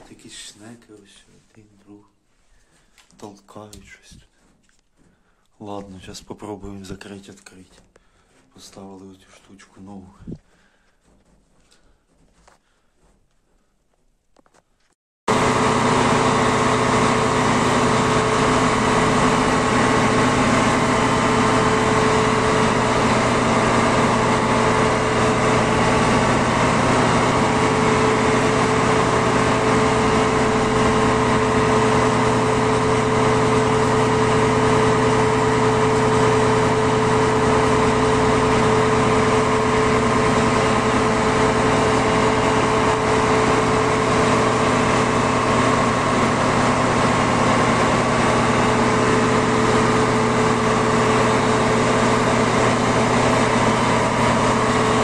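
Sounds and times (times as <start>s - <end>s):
combine harvester engine hum: 15.3s - 55.0s
steady machine whine: 15.3s - 55.0s.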